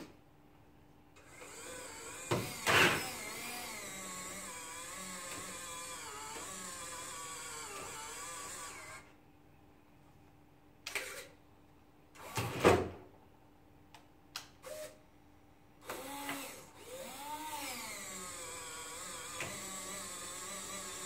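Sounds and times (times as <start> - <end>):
winch motor whine: 16.8 - 21.0.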